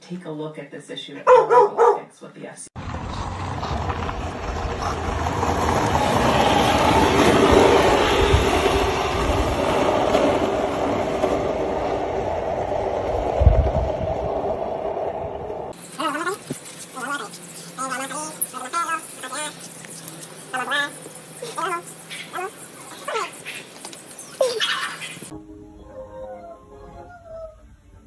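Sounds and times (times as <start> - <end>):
skateboard wheels rolling on asphalt: 2.8 - 15.8.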